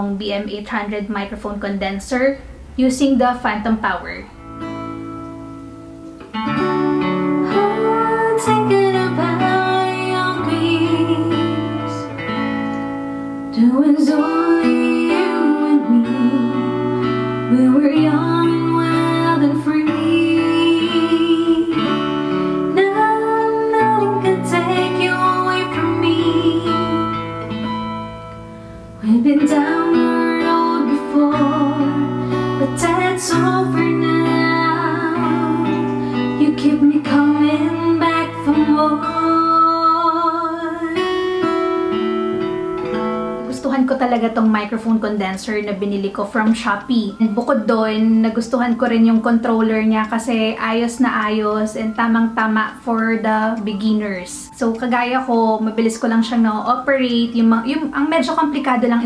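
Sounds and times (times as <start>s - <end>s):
strummed guitar: 0.7s - 59.0s
woman singing: 7.3s - 12.2s, 13.5s - 27.5s, 29.0s - 41.4s, 46.4s - 59.0s.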